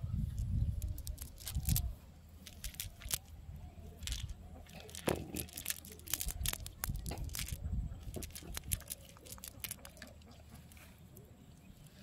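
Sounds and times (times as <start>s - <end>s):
net mesh rustling: 0.8s - 3.3s, 4.0s - 10.1s.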